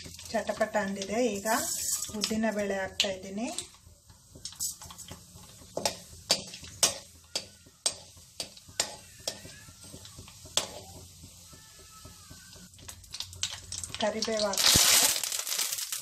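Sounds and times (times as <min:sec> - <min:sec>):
lentils sizzling in oil: 0:00.0 - 0:16.0.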